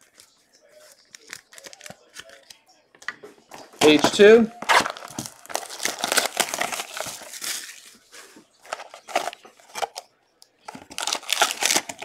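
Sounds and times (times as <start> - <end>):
plastic shrink-wrap crinkling: 3.8 - 10.0, 10.7 - 12.0.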